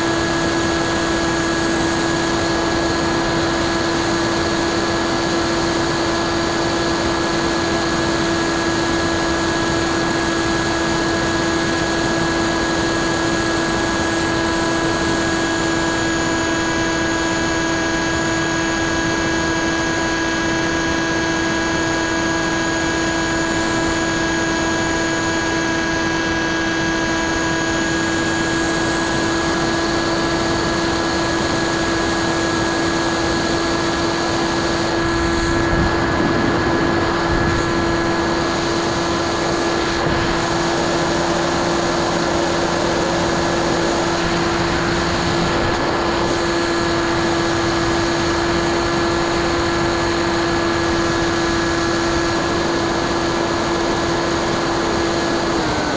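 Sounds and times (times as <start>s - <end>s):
electric motor propeller whine: 0.0s - 55.9s
rush of passing air: 35.0s - 40.8s.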